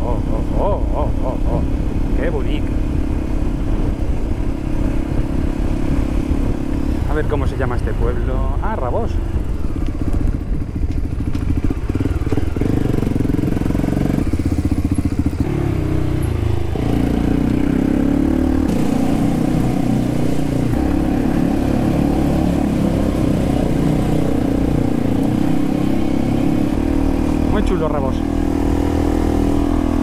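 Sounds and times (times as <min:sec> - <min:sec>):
motorcycle engine running: 0:00.0 - 0:30.0.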